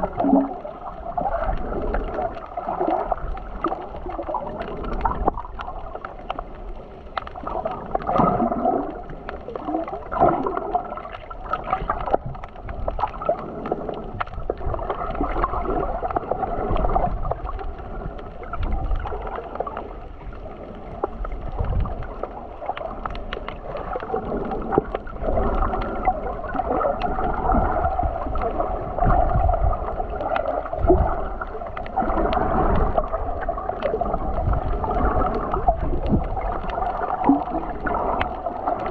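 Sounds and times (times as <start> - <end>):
muffled water sloshing and gurgling: 0.0 - 38.9
small clicks: 1.4 - 8.2.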